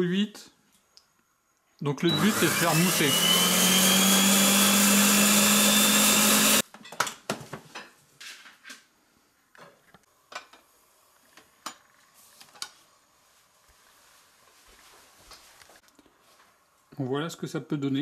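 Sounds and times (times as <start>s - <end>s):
food processor whirring: 2.1s - 6.6s.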